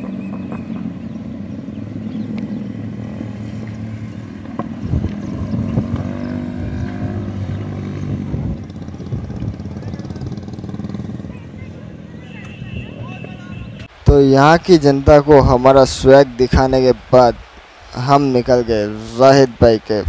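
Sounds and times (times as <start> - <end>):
motorcycles riding by: 0.0 - 13.9.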